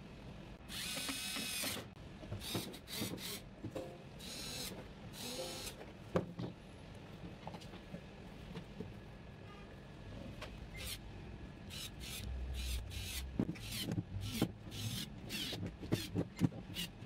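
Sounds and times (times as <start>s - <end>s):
cordless screwdriver whirring: 11.7s - 16.1s
plastic parts clicking and knocking: 15.4s - 17.0s.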